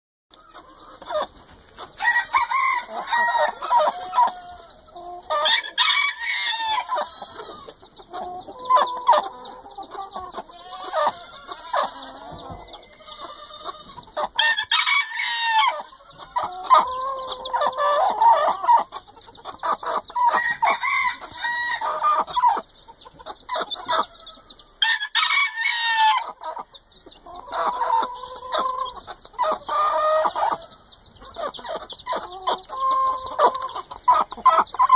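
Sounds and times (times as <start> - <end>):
chickens clucking: 0.3 - 34.9
long loud hen calls: 10.3 - 18.8.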